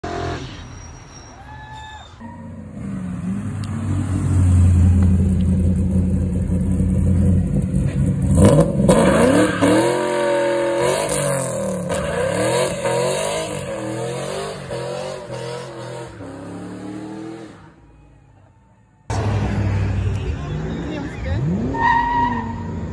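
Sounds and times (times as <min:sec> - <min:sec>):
car engine revving: 0:02.4 - 0:17.8.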